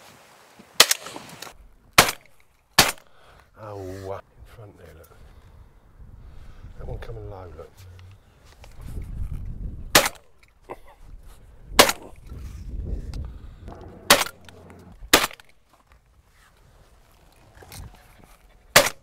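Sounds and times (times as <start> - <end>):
shotgun shots: 2.0 - 3.1, 9.9 - 10.3, 11.8 - 12.1, 13.7 - 15.6, 18.7 - 19.0
low rumble: 13.0 - 15.4.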